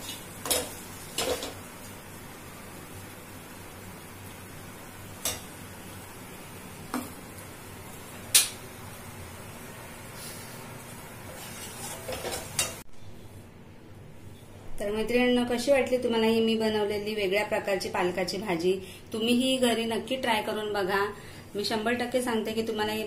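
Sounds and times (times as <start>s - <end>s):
spatula scraping steel bowl: 11.3s - 12.8s.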